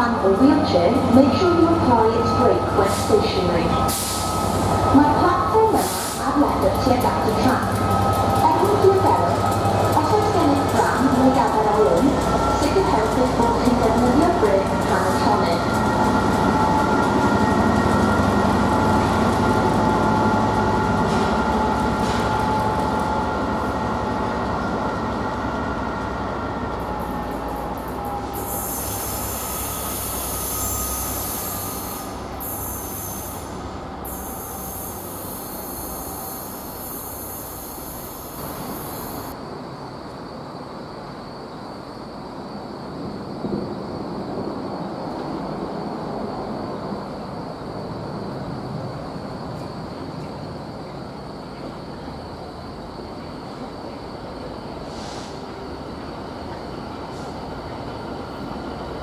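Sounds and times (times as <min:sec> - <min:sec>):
diesel locomotive engine: 0:00.0 - 0:59.0
rail noise: 0:00.0 - 0:59.0
high wheel squeal: 0:28.2 - 0:39.3.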